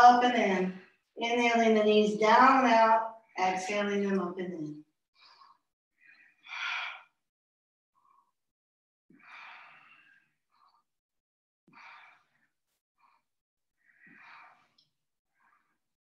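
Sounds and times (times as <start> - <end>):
person breathing slowly: 5.2 - 7.3, 8.0 - 8.5, 9.1 - 11.0, 11.7 - 16.0.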